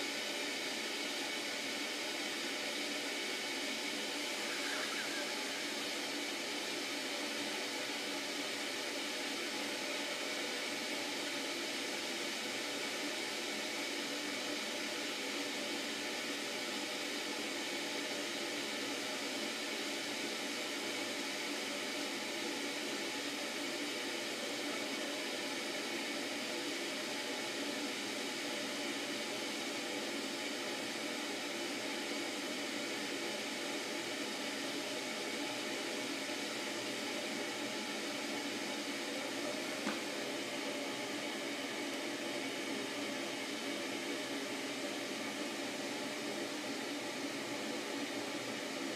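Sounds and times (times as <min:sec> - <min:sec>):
steady hiss: 0:00.0 - 0:18.8.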